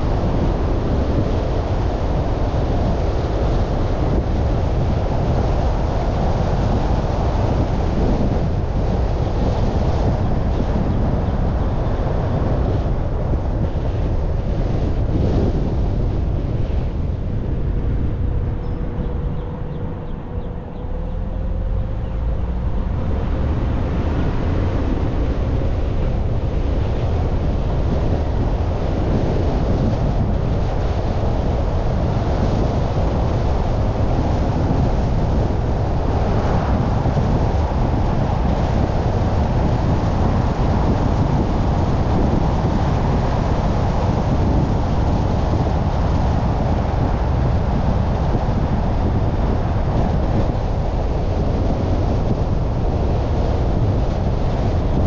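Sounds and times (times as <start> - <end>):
car road and engine noise: 0.0 - 55.0
wind buffeting microphone: 0.0 - 55.0.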